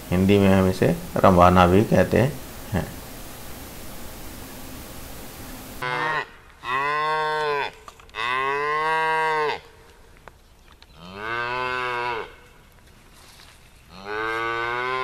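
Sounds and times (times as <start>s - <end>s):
calves mooing: 5.8s - 9.7s, 11.0s - 12.4s, 13.9s - 15.0s.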